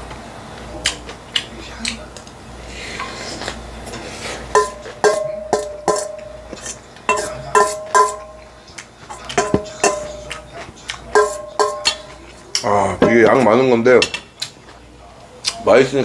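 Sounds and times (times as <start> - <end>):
metal utensil clinking on steel bowl: 4.5 - 8.5, 9.1 - 10.4, 11.1 - 12.7.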